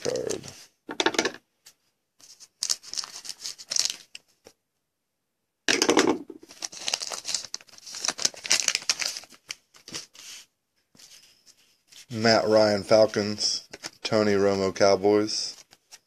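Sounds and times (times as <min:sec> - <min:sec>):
foil pack crinkling and tearing: 0:02.6 - 0:04.2, 0:06.4 - 0:10.1.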